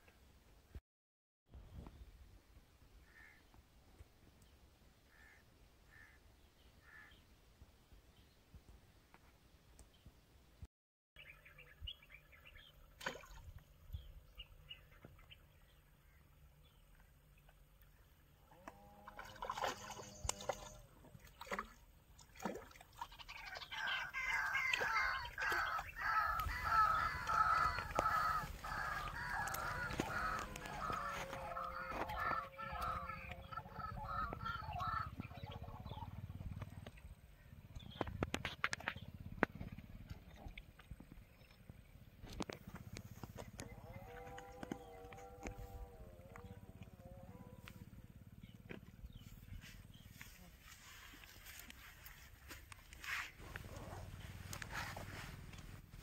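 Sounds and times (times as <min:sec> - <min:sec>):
fish splashing in water: 0:19.0 - 0:31.3
birds calling rapidly: 0:22.9 - 0:39.7.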